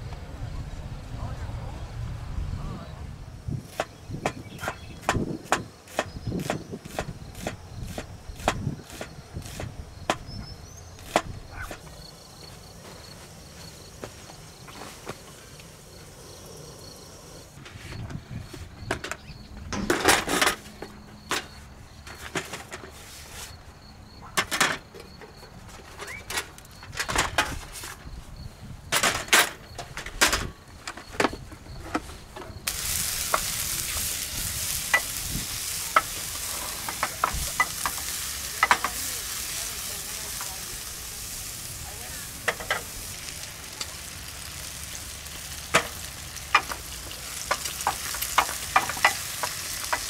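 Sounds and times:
food frying with pops: 32.6s - 50.0s.

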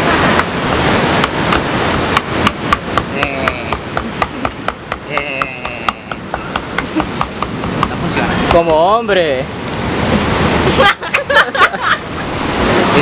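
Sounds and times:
metal tool knocking coconut shell: 2.2s - 8.9s.

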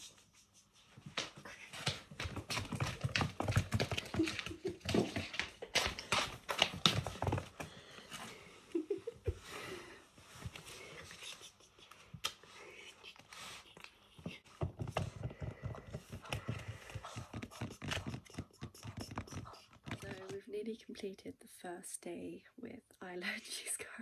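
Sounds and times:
slipper footsteps: 0.8s - 8.4s
puppy paws tapping on floor: 0.8s - 9.6s, 14.0s - 20.5s.

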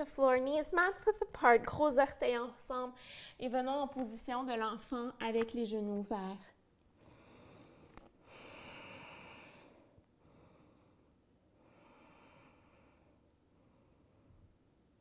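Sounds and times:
woman breathing slowly: 3.0s - 3.4s, 7.0s - 14.6s.

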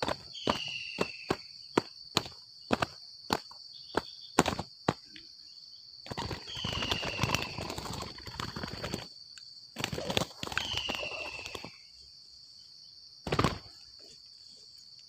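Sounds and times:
fluttering wingbeats: 0.0s - 4.6s, 6.0s - 9.1s, 9.8s - 11.8s, 13.2s - 13.8s
high insect hum: 0.0s - 15.0s
wing slaps: 13.2s - 13.8s.

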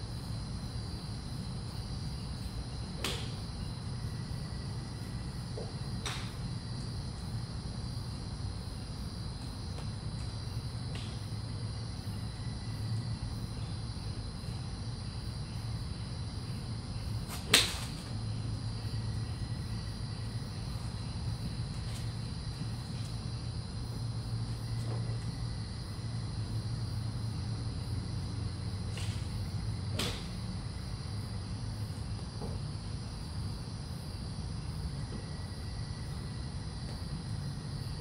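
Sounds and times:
golf club striking ball: 6.0s - 6.4s, 29.9s - 30.4s.

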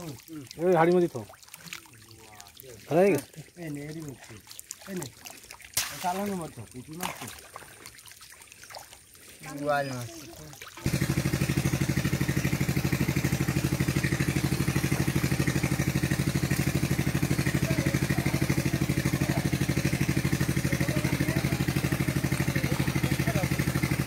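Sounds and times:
small engine running: 10.8s - 24.0s.

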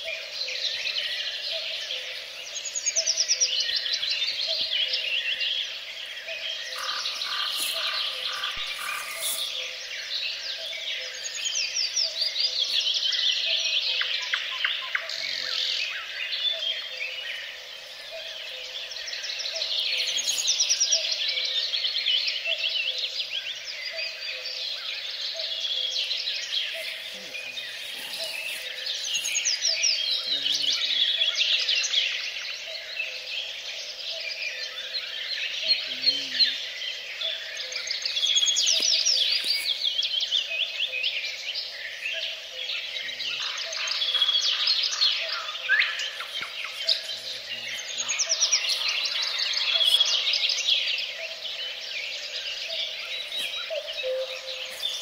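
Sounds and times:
frogs croaking: 0.0s - 55.0s
songbirds chirping and trilling: 0.0s - 55.0s.

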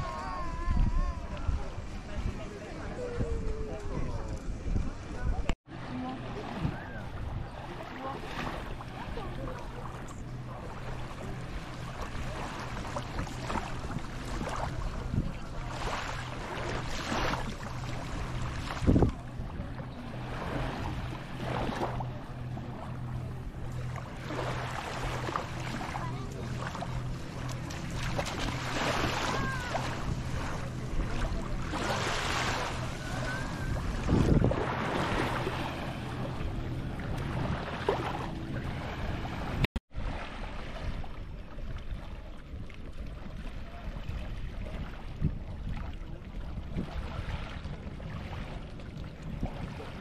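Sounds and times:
steady low hum: 0.0s - 50.0s
wind on microphone: 0.0s - 50.0s
small waves washing on sand: 4.9s - 22.9s, 23.8s - 50.0s.

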